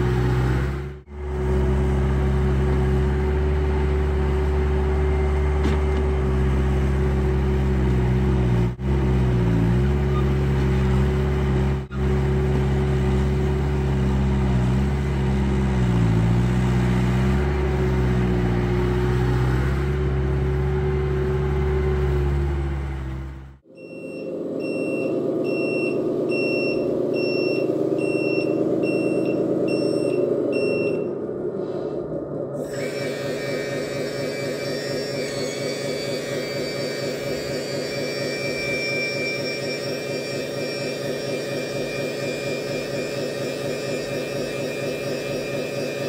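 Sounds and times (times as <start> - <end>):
reversing beeper: 3.1 - 7.2, 23.7 - 31.3, 32.6 - 46.0
hydraulic whine: 32.5 - 46.0.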